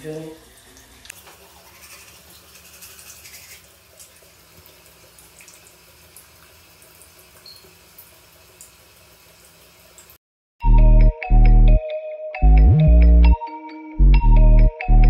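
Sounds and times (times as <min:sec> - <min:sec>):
running water: 0:00.0 - 0:10.2.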